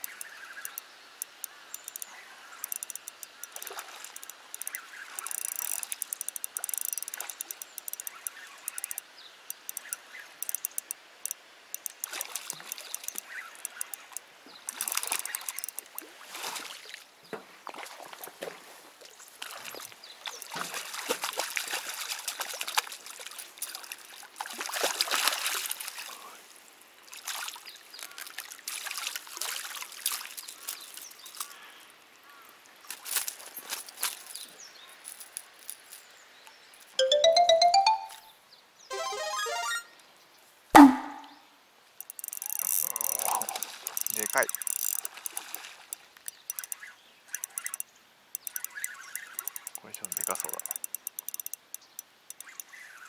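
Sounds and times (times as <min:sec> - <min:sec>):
quick clicks: 0:00.0 - 0:10.9, 0:46.3 - 0:46.8, 0:47.4 - 0:47.8, 0:48.4 - 0:52.7
water trickling and splashing: 0:00.0 - 0:36.7, 0:42.0 - 0:53.0.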